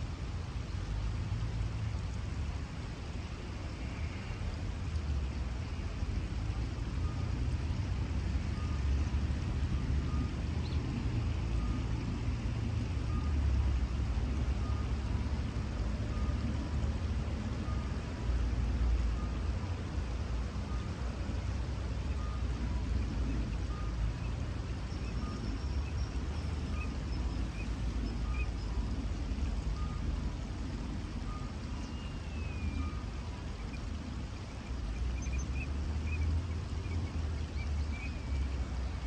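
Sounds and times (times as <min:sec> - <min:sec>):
road traffic rumble: 0:00.0 - 0:39.0
faint electronic beep: 0:08.5 - 0:09.0, 0:09.7 - 0:10.8, 0:11.4 - 0:12.0, 0:13.0 - 0:13.5, 0:14.6 - 0:15.0, 0:16.1 - 0:16.5, 0:17.6 - 0:18.0, 0:19.1 - 0:19.5, 0:22.1 - 0:22.6, 0:23.3 - 0:24.0, 0:29.7 - 0:30.2, 0:31.2 - 0:33.2
bird chirps: 0:31.3 - 0:33.9, 0:34.9 - 0:39.0.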